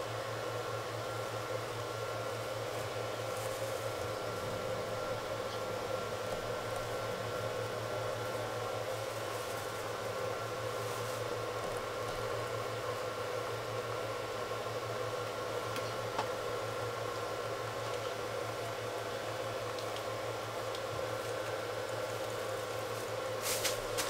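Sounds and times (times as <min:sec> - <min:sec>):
mechanical hum with hiss: 0:00.0 - 0:24.0.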